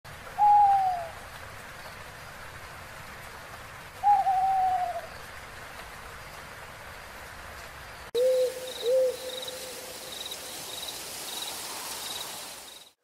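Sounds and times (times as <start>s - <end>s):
steady hiss: 0.1s - 13.0s
owl hooting: 0.4s - 1.2s, 4.0s - 5.1s, 8.2s - 9.9s.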